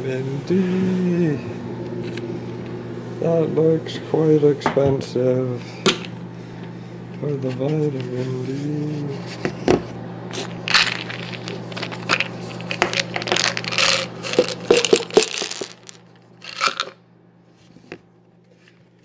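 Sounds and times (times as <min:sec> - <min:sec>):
tablets clattering on a table: 0:10.6 - 0:17.0
pill bottle clicking and rattling: 0:10.7 - 0:17.0.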